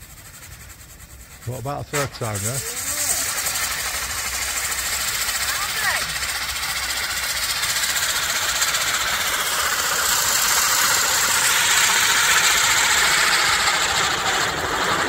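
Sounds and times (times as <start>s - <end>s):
firework fizzing hiss: 0.0s - 15.0s.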